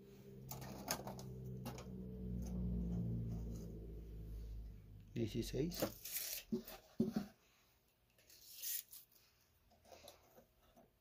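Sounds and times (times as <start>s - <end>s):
low steady hum: 0.0s - 5.9s.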